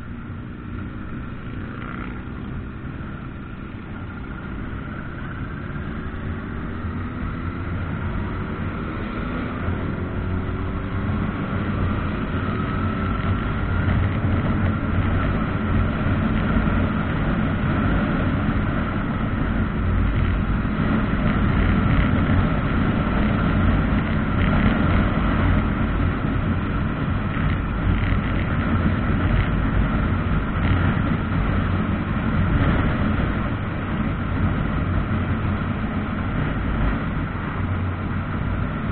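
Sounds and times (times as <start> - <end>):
motorcycle accelerating: 0.0 - 38.9
wind rush on microphone: 2.5 - 38.9.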